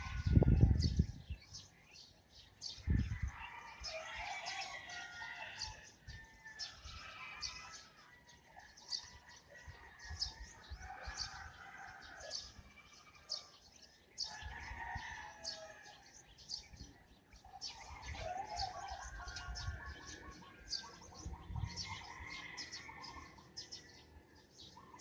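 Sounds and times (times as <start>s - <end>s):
birds chirping: 0.0s - 25.0s.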